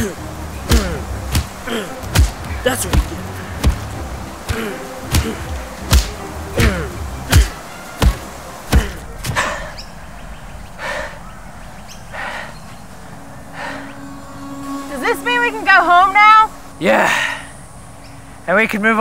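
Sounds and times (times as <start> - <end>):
soft hissy swishes: 0.0 - 19.0
hard punch thumps: 0.7 - 9.5.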